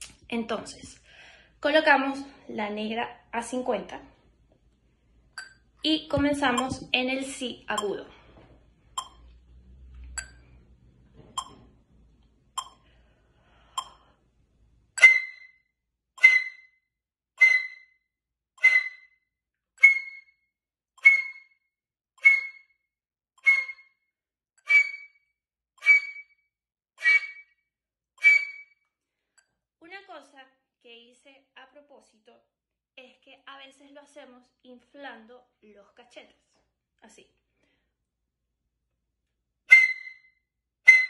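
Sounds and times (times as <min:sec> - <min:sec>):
metronome clicking: 0:06.5 - 0:06.9, 0:09.0 - 0:09.3, 0:11.4 - 0:11.6, 0:12.6 - 0:12.8, 0:13.8 - 0:14.0
flute short accented notes: 0:16.2 - 0:16.7, 0:19.8 - 0:20.3, 0:21.0 - 0:21.5, 0:22.2 - 0:22.7, 0:23.4 - 0:23.9, 0:24.6 - 0:25.1, 0:25.8 - 0:26.2, 0:27.0 - 0:27.4, 0:28.2 - 0:28.7, 0:39.7 - 0:40.2.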